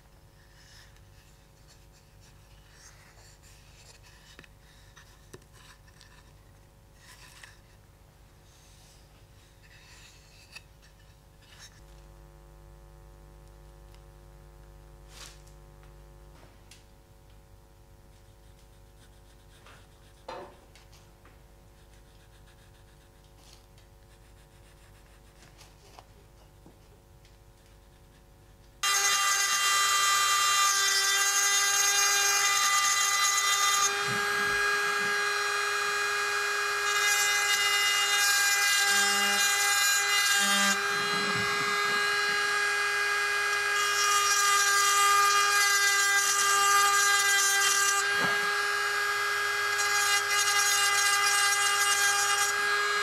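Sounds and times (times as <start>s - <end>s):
bit grinding into wood: 28.8s - 53.0s
rotary tool high whine: 28.8s - 53.0s.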